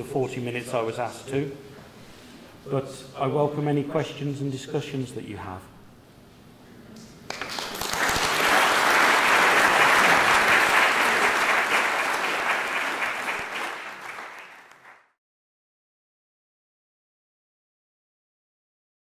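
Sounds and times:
audience applauding: 0:07.3 - 0:15.2.

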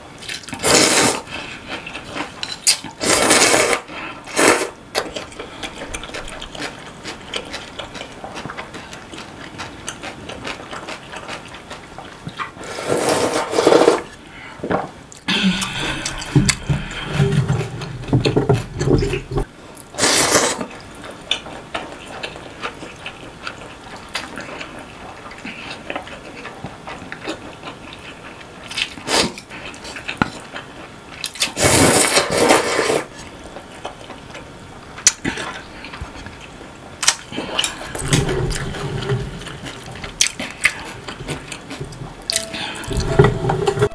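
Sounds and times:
slurping noodles: 0:00.6 - 0:01.6, 0:03.0 - 0:04.8, 0:12.6 - 0:14.2, 0:20.0 - 0:20.7, 0:31.4 - 0:33.1
chewing and swallowing: 0:05.0 - 0:12.5, 0:15.1 - 0:19.9, 0:33.6 - 0:43.0.

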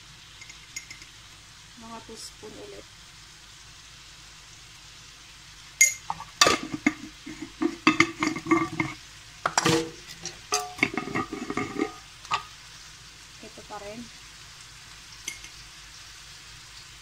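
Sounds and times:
spoon clinking on metal cookware: 0:00.4 - 0:01.1, 0:05.8 - 0:12.5, 0:15.2 - 0:15.6.

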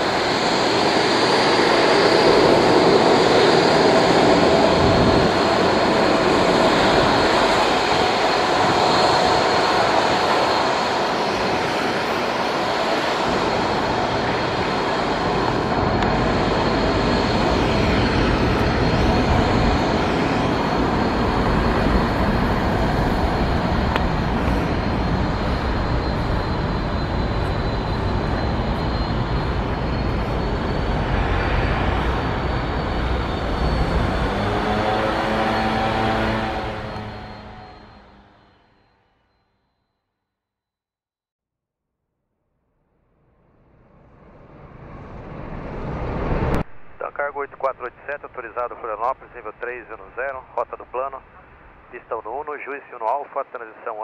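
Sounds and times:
jet engines taxiing: 0:00.0 - 0:40.0, 0:43.6 - 0:54.0.

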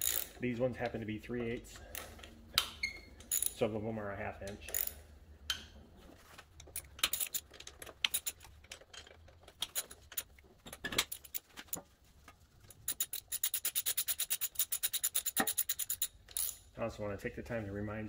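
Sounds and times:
socket ratchet clicking: 0:06.7 - 0:08.5, 0:12.7 - 0:16.6.

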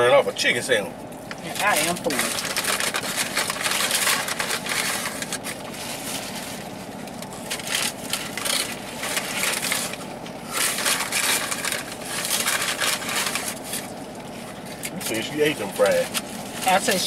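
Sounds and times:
paper wrapper rustling: 0:01.6 - 0:17.0
crunching of crispy food: 0:02.0 - 0:16.7.

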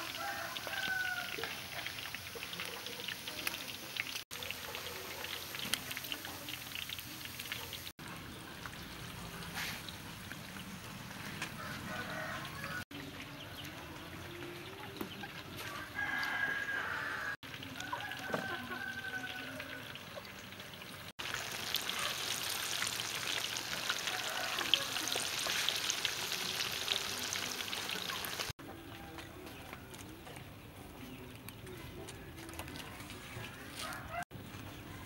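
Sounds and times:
deep-frying crackling sizzle: 0:00.0 - 0:13.2, 0:16.0 - 0:28.6.

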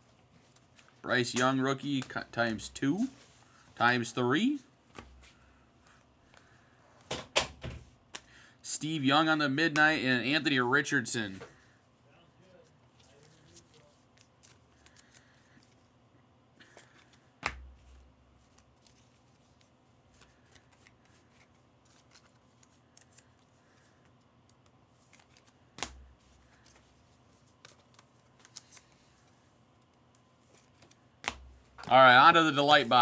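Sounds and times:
trading cards rustling: 0:00.3 - 0:06.8, 0:12.5 - 0:16.0, 0:16.6 - 0:33.0.

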